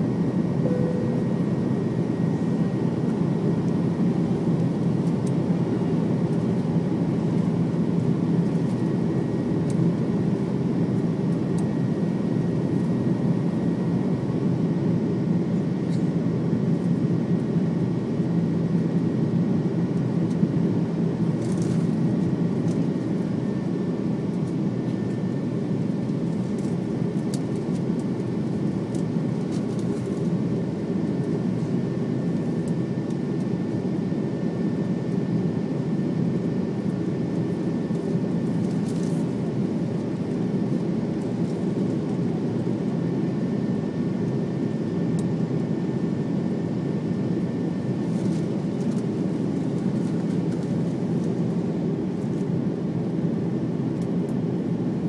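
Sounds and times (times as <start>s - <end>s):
faint high whine: 0.0s - 6.0s
jet cabin engine roar: 0.0s - 55.0s.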